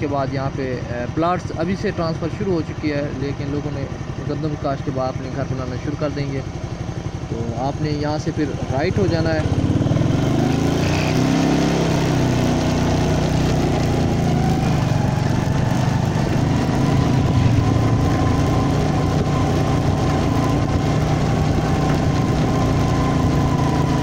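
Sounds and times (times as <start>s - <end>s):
vehicle engine drone: 0.0s - 24.0s
motorcycle passing: 6.7s - 24.0s.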